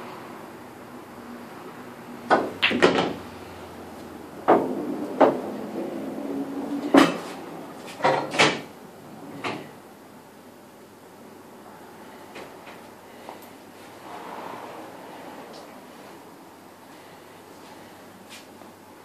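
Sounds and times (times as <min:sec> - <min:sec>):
pool balls clacking: 0:02.3 - 0:03.3, 0:04.4 - 0:08.7
pool balls rolling: 0:02.3 - 0:09.8, 0:13.9 - 0:16.2.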